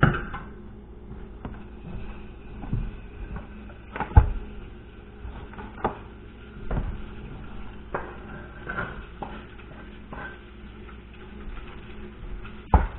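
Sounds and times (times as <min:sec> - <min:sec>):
kitchen knocks and thumps: 0:12.6 - 0:12.9.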